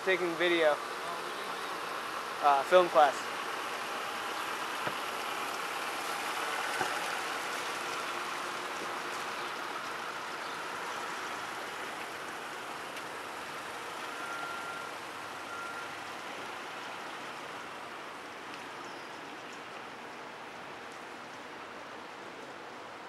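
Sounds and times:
cars driving past: 0.0 - 18.8.

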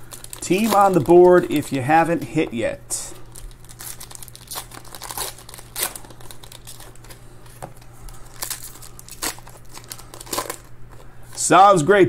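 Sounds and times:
foil wrapper crinkling: 0.0 - 2.4, 3.0 - 11.5.

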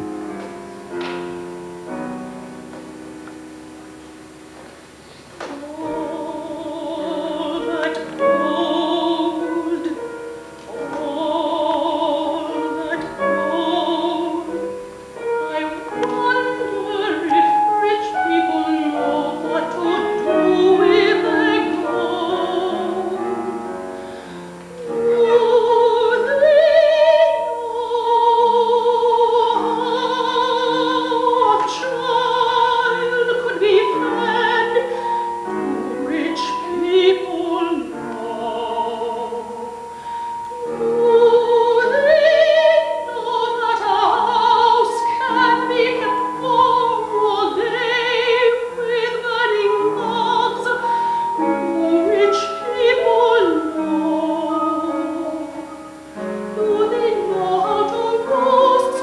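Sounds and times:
piano accompaniment: 0.0 - 59.0
woman singing opera: 5.0 - 59.0
singer breathing: 24.0 - 24.5, 39.9 - 40.4.

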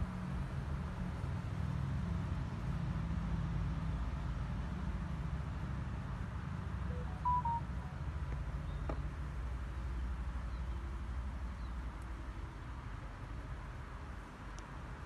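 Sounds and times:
brief high chirp: 6.9 - 8.0.

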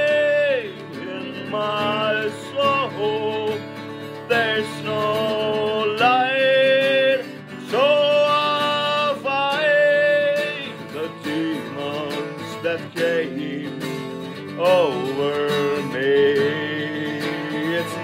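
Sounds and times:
man singing: 0.0 - 18.0
strummed acoustic guitar: 0.0 - 18.0.

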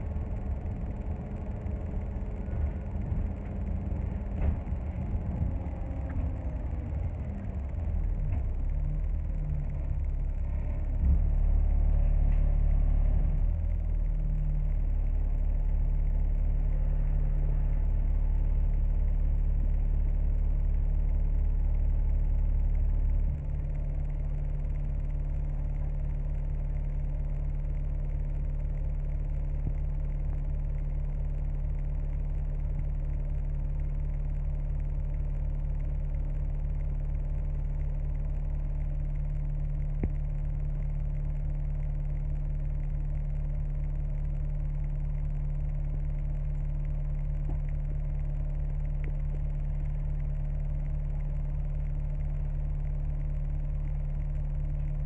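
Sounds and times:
bus engine idling: 0.0 - 55.0
faint tick: 23.3 - 55.0.

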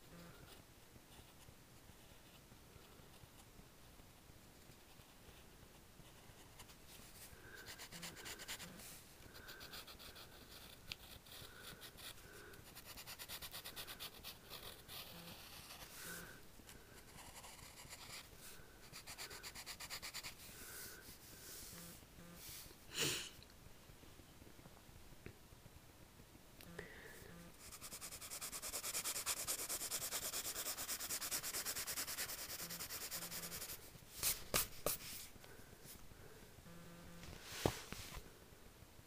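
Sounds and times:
pencil scratching on paper: 7.6 - 16.3, 17.0 - 20.8, 27.6 - 35.0.

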